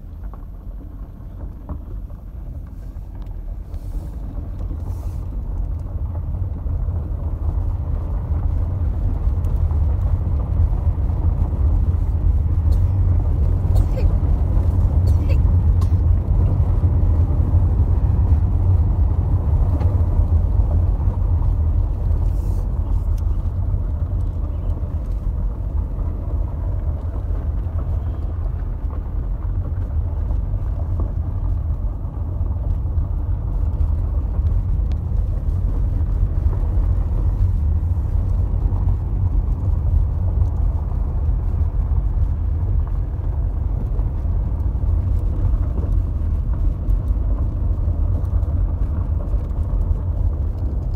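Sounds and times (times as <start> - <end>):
car driving on dirt road: 0.0 - 50.9.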